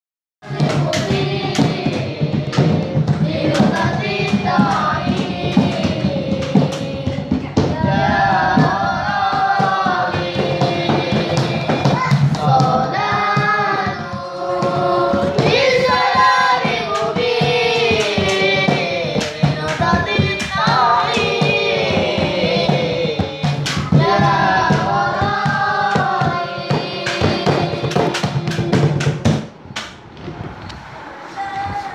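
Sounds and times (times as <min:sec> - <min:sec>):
boy singing into a microphone: 0:00.4 - 0:29.1
hand drumming on a plastic bucket: 0:00.5 - 0:29.9.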